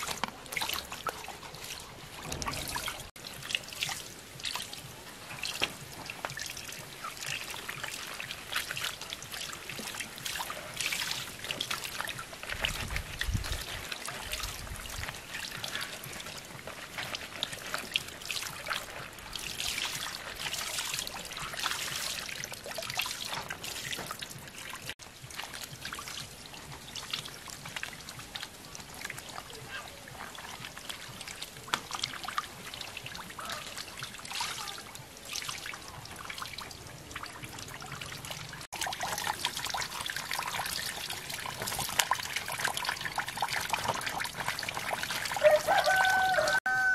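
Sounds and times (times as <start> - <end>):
water splashing in a basin: 0.0 - 46.9
wet leaves being handled: 0.0 - 46.9.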